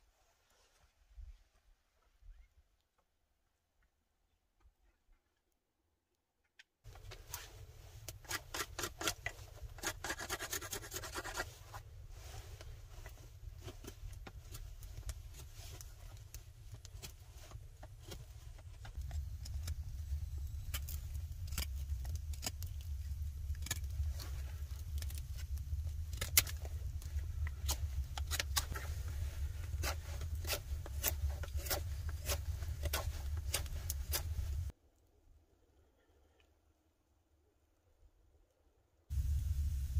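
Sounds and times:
wood fire crackling: 0:06.9 - 0:34.8, 0:39.1 - 0:39.9
knife shaving a dry stick: 0:07.0 - 0:34.7
low steady rumble: 0:11.8 - 0:34.7, 0:39.1 - 0:39.9.

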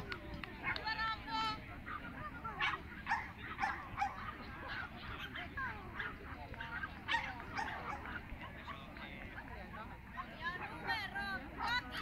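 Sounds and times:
murmur of voices: 0:00.0 - 0:12.0
dogs yapping: 0:01.7 - 0:08.9.

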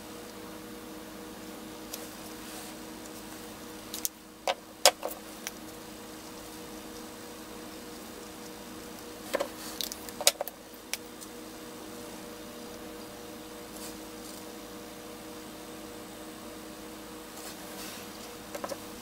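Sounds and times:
electrical hum of fan: 0:00.0 - 0:19.0
small clicks and taps: 0:18.5 - 0:18.8.

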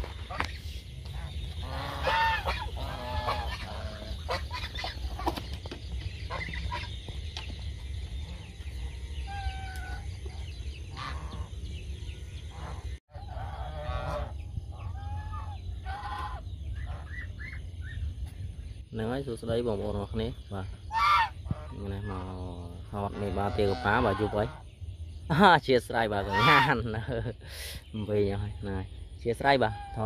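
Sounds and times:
geese honking: 0:00.0 - 0:18.1, 0:20.8 - 0:24.7, 0:26.1 - 0:27.0, 0:29.5 - 0:30.0
steady low rumble: 0:00.0 - 0:26.3.

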